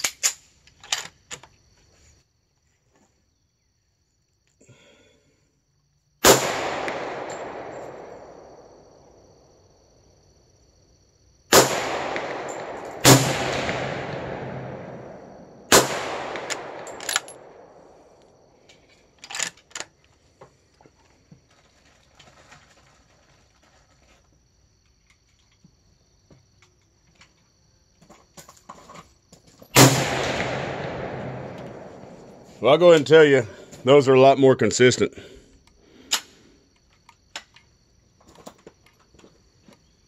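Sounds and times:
gunshots with rolling echo: 6.2 - 9.2, 11.5 - 18.2, 29.8 - 33.6.

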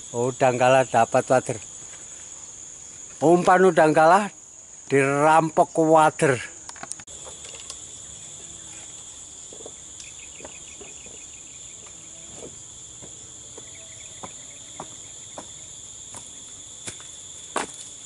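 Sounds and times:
high-pitched insect chorus: 0.0 - 18.0
trilled insect chirps: 0.0 - 18.0
footsteps on wooden planks: 9.5 - 9.8, 10.4 - 17.9.

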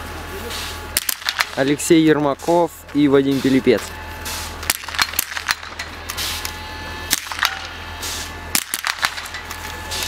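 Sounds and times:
rifle shots cracking: 7.1 - 7.7, 8.6 - 9.4.

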